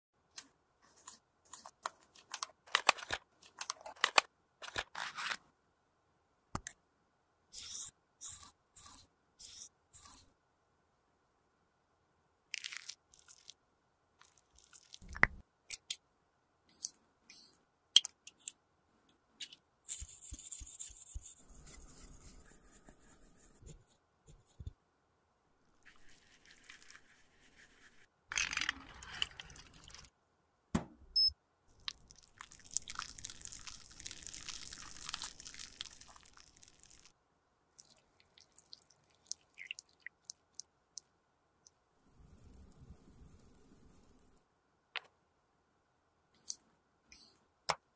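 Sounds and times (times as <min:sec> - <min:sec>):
cotton swab scrubbing plastic: 0:25.8 - 0:28.1.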